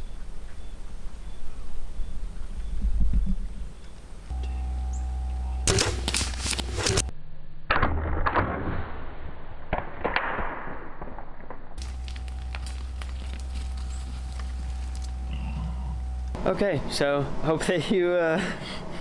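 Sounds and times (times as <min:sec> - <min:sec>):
scattered cracks: 0:05.6 - 0:07.1, 0:09.7 - 0:15.4.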